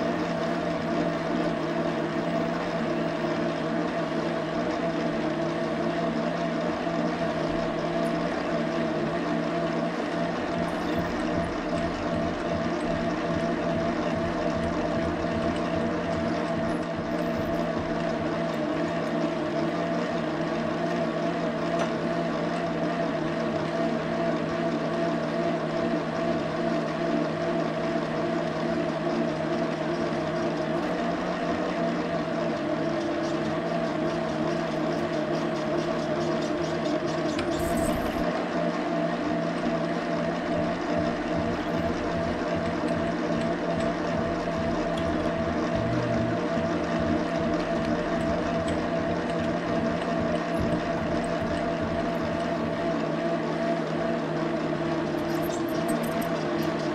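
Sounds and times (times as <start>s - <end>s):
metal lathe humming: 0.0s - 21.7s, 39.4s - 56.9s.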